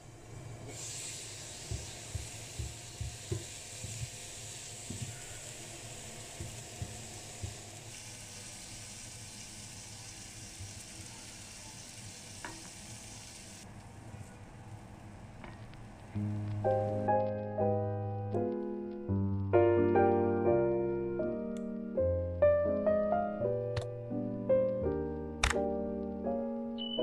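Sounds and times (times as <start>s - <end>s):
vegetables sizzling in a frying pan: 0.6s - 13.6s.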